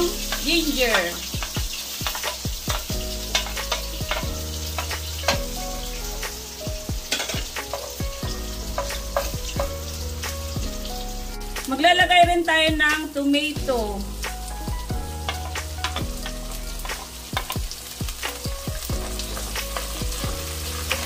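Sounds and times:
food sizzling in oil: 0.0 - 21.0
wooden spoon stirring: 8.6 - 9.9, 15.2 - 18.4.

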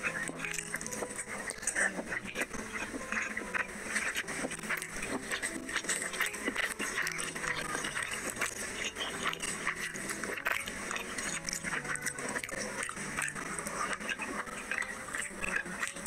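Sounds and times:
fingers squishing food in gravy: 0.0 - 16.0
wet chewing and lip smacking: 0.0 - 16.0.

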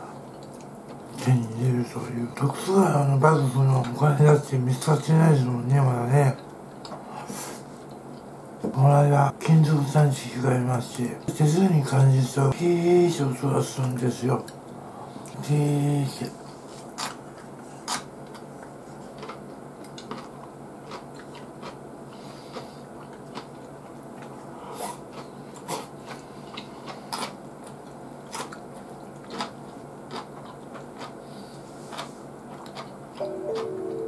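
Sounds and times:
low steady hum: 0.0 - 34.0
person chewing food: 0.2 - 1.1, 17.0 - 33.8.

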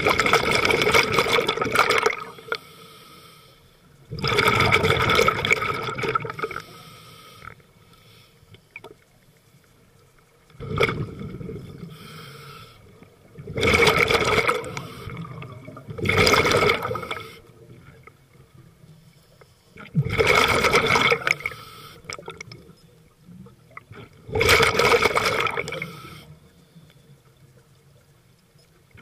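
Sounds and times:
underwater exhaust bubbles: 0.0 - 2.7, 4.0 - 7.8, 8.5 - 29.0
regulator hiss: 2.3 - 4.0, 6.6 - 8.6, 11.8 - 13.0, 21.4 - 22.1, 25.8 - 27.1.

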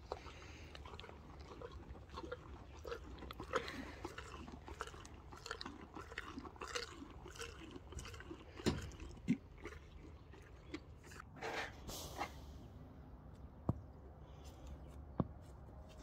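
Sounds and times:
donkey chewing: 0.0 - 11.6.

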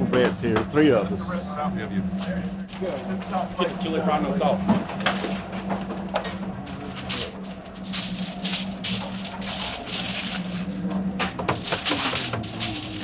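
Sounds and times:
low kitchen hum: 0.0 - 13.0
salt shaker rattling: 7.1 - 10.8.

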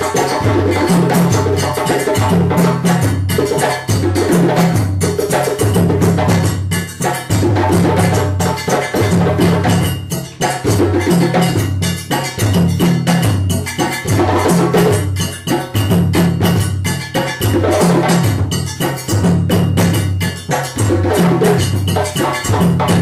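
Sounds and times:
djembes playing fast rhythm: 0.0 - 23.0.

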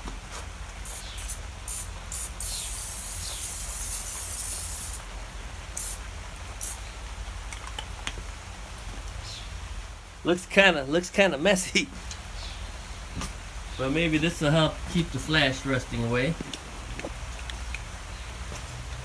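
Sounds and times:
aerosol spray hissing: 0.8 - 5.0, 5.8 - 6.0, 6.6 - 6.8.

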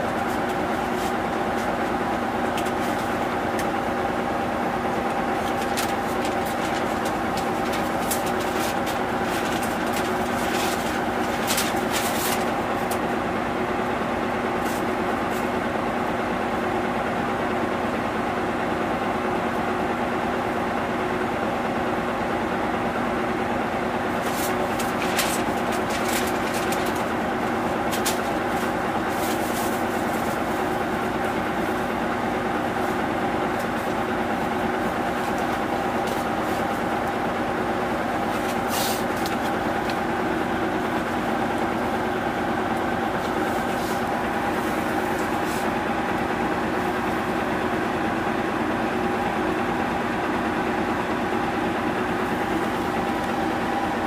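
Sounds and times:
bus diesel engine humming: 0.0 - 54.0
faint clicks and rattles: 24.2 - 30.6.

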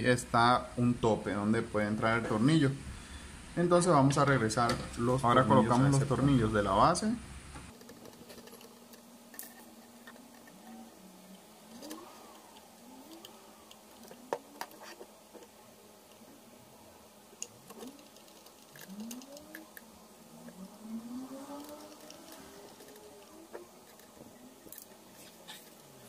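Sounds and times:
screws squeaking: 7.8 - 15.2, 17.5 - 19.9.

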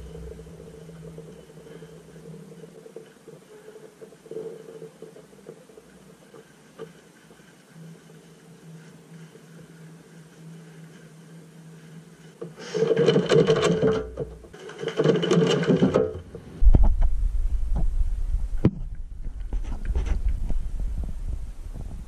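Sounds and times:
loud low rumble: 0.0 - 1.5, 16.5 - 22.0.

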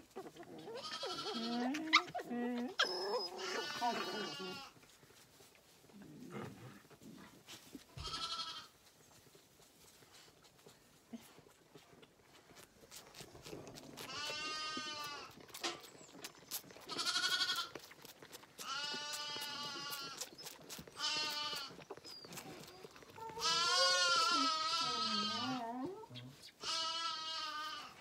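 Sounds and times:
lamb bleating: 0.8 - 2.0, 3.3 - 4.8, 8.0 - 8.7, 14.0 - 15.4, 16.8 - 17.9, 18.6 - 20.3, 20.9 - 21.8, 23.3 - 25.6, 26.6 - 28.0.

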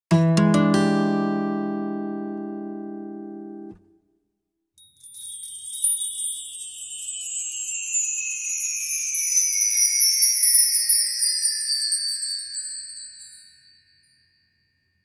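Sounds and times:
shimmering chime sliding downward: 5.0 - 14.3.

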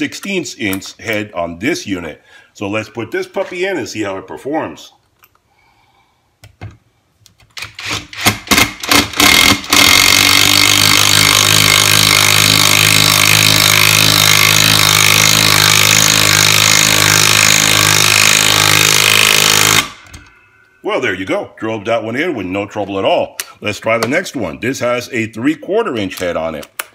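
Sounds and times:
impact driver hammering: 7.8 - 20.3.

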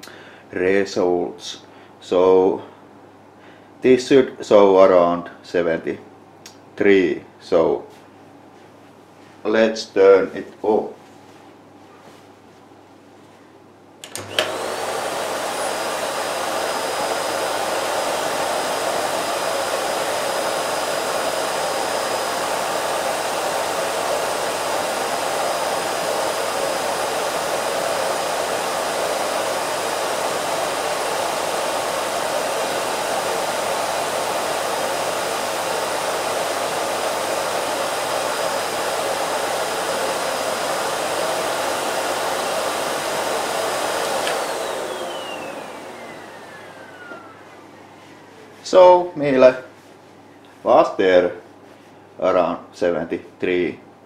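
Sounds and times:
vacuum cleaner switch click: 14.0 - 14.6, 44.1 - 45.6
vacuum cleaner motor whine: 14.0 - 49.5.

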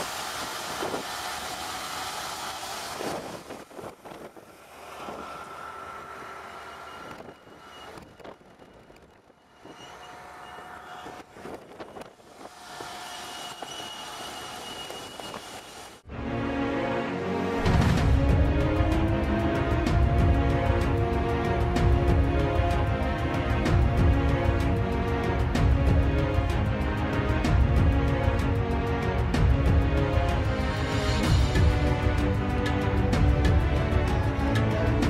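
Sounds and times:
tractor engine and implement: 0.0 - 16.0
thin whining tones: 4.7 - 15.9.

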